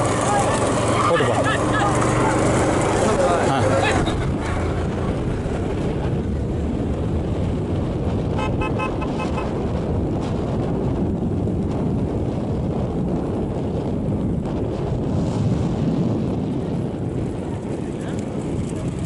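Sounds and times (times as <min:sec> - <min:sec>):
wind rumble on microphone: 0:00.0 - 0:19.0
vehicle horn short beeps: 0:08.4 - 0:09.5.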